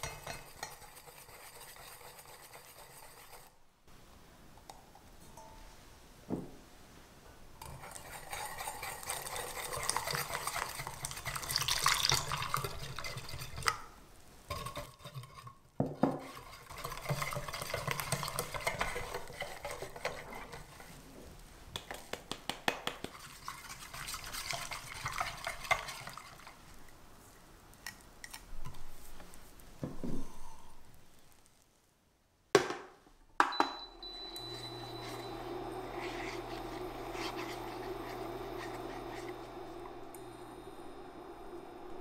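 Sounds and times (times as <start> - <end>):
whisk swishing in a saucepan: 0.0 - 3.6, 7.6 - 21.1, 23.0 - 26.9, 34.1 - 42.0.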